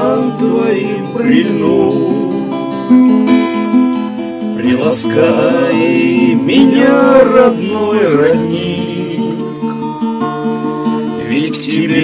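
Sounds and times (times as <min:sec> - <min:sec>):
person singing: 0:00.0 - 0:02.6, 0:04.6 - 0:09.8, 0:11.2 - 0:12.0
acoustic guitar: 0:00.0 - 0:12.0.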